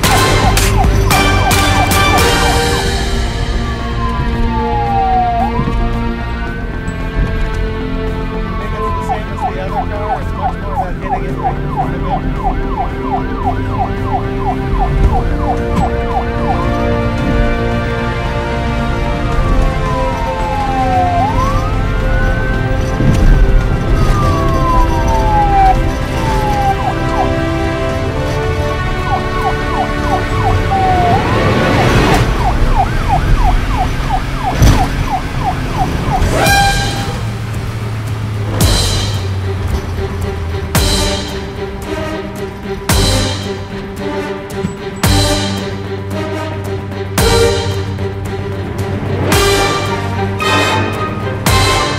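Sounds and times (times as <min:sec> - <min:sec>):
siren yelping: 0:00.0 - 0:06.1, 0:08.4 - 0:17.1, 0:19.4 - 0:37.3
background music: 0:00.0 - 0:51.9.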